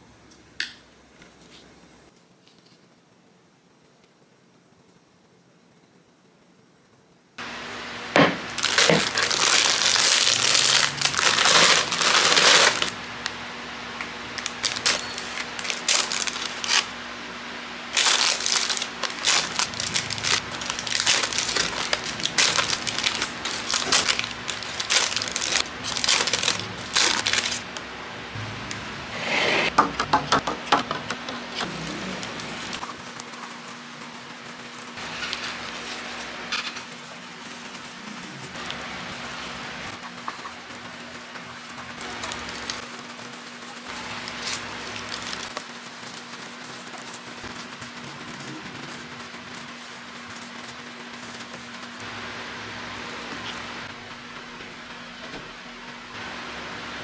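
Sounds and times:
plastic wrappers rustling: 8.5 - 13.4, 14.3 - 17.0, 17.9 - 27.8, 31.5 - 52.1
wrappers tearing open: 8.6 - 13.0, 14.3 - 17.0, 17.9 - 27.7, 41.9 - 52.0.

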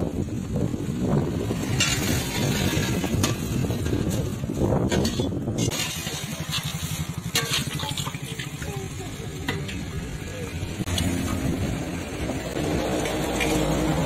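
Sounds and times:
low engine rumble: 0.0 - 14.0
street traffic: 0.0 - 14.0
ladle clinking on pot rim: 5.7 - 8.4
ladle stirring thick gravy: 5.7 - 8.7.

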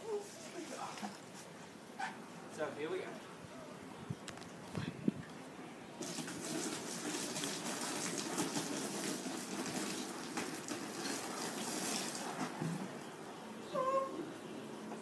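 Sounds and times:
water splashing: 6.0 - 12.6
water pouring from watering can: 6.0 - 12.7.

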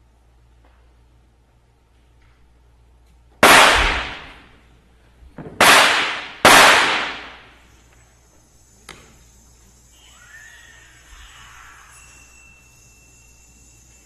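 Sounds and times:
loud sharp cracks reverberating: 3.4 - 4.5, 5.6 - 7.6.

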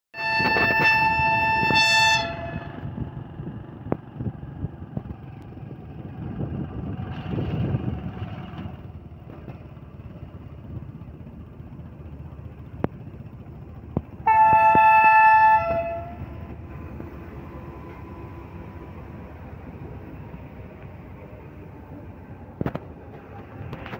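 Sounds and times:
locomotive air horn blast: 0.2 - 3.0, 14.2 - 16.4.

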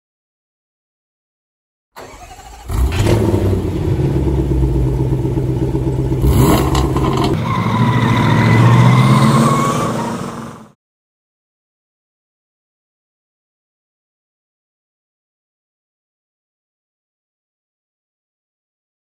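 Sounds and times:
engine whine: 2.0 - 10.8
vehicle engine running: 2.6 - 10.7.

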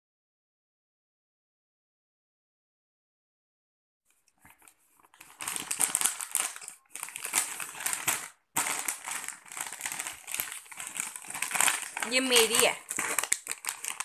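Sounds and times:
plastic snack packets crinkling: 4.4 - 14.0.

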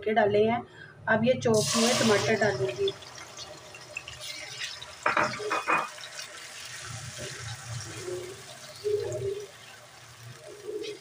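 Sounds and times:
tomatoes sizzling in oil: 1.6 - 11.0.

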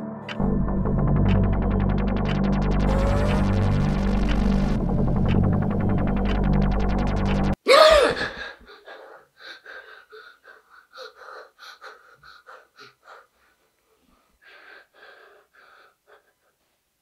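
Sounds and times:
girl panting in ragged gasps: 7.7 - 13.6, 14.2 - 16.6.

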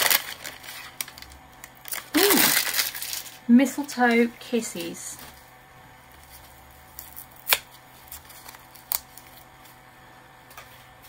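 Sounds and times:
plastic bag rustling: 0.0 - 5.4.

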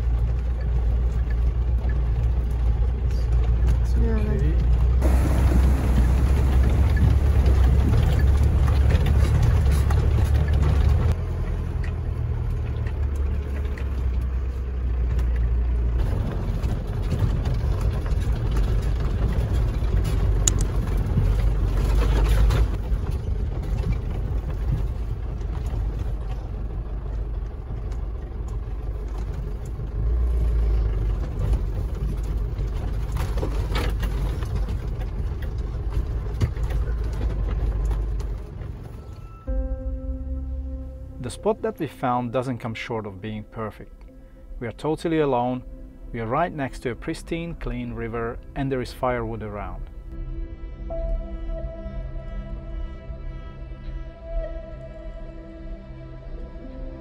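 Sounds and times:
diesel engine rumbling: 0.0 - 57.0.

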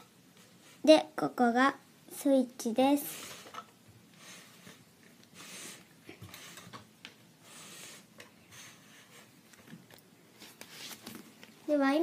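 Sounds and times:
soft sliding and rustling: 7.5 - 12.0.

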